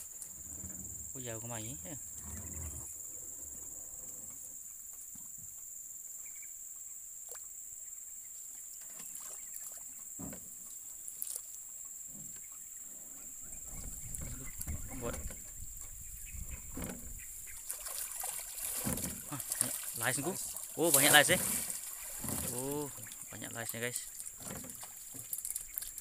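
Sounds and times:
small water splashes: 8.8s - 11.8s, 16.8s - 26.0s
knocks against wooden boat: 10.2s - 10.6s, 16.6s - 17.2s, 18.7s - 19.7s, 21.0s - 22.8s, 24.4s - 25.3s.

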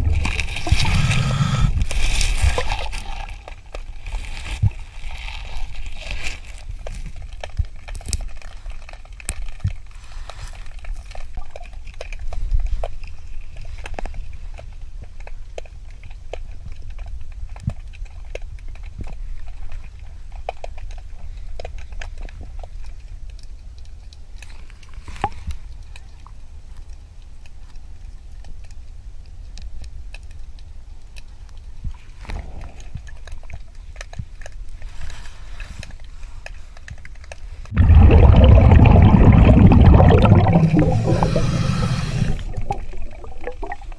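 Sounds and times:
small clicks and crackles: 0.0s - 37.8s
underwater low rumble: 37.7s - 43.9s.

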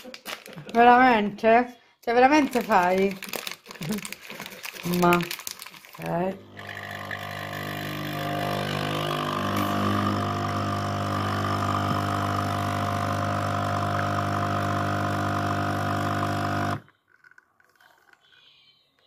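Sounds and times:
coffee machine pump humming: 6.4s - 16.9s.

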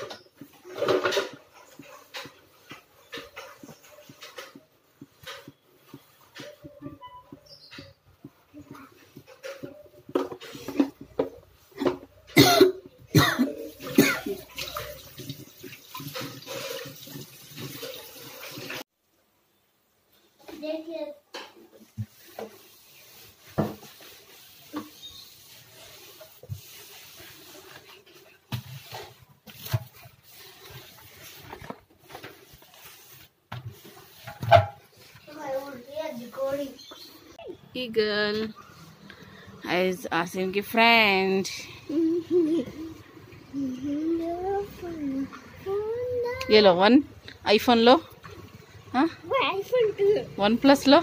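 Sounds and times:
water splashing in sink: 12.4s - 18.8s, 22.1s - 35.1s.

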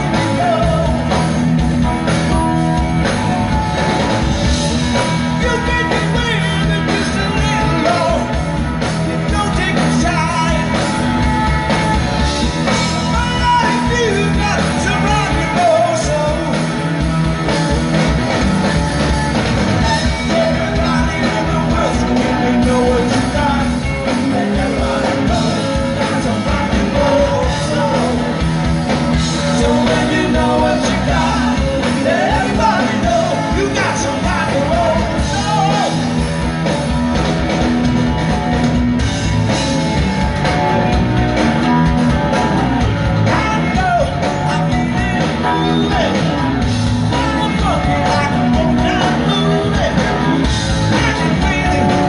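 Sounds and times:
lead singer singing: 0.0s - 2.6s, 4.9s - 17.5s, 19.6s - 36.4s, 40.8s - 52.0s
live rock band playing: 0.0s - 52.0s.

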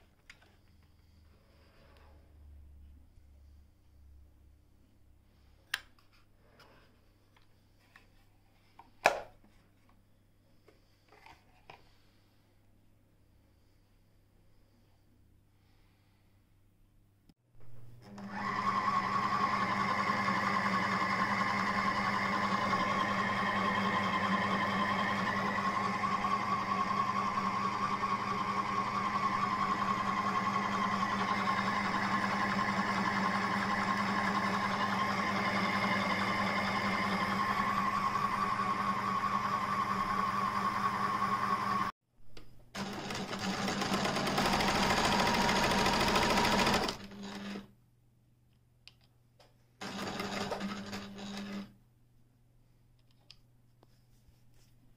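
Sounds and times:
sewing machine stitching: 18.0s - 41.9s, 42.8s - 47.7s, 49.8s - 51.8s
sewing machine motor whine: 18.1s - 41.9s, 42.8s - 47.7s, 49.8s - 51.8s.

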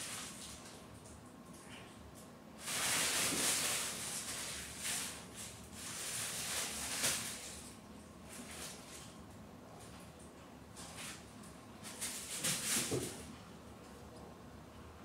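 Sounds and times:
crinkly play tunnel rustling: 0.0s - 0.9s, 2.6s - 9.2s, 11.8s - 13.4s.

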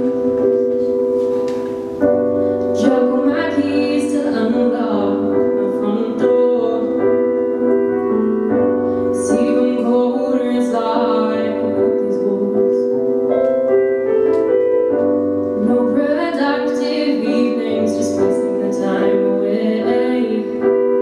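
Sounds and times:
piano chords: 0.0s - 21.0s
woman singing: 2.7s - 13.1s, 15.6s - 20.8s.

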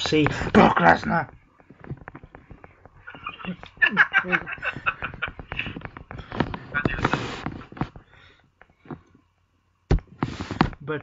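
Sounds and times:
people laughing: 3.1s - 5.8s.

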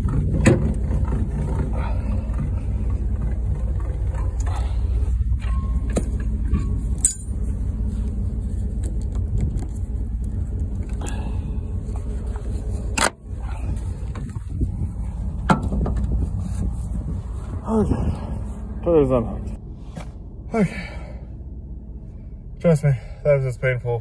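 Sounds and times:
low rumble: 0.0s - 23.7s
metal clanks of trailer hitch: 4.0s - 7.5s.

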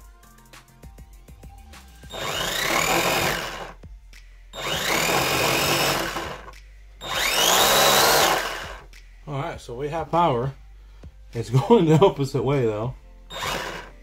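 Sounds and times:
drone motor whining: 2.0s - 3.8s, 4.6s - 8.9s, 13.3s - 14.0s.

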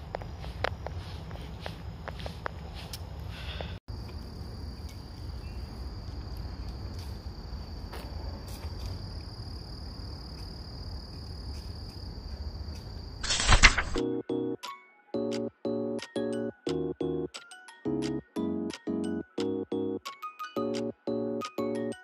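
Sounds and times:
high-pitched insect trill: 3.9s - 13.2s.

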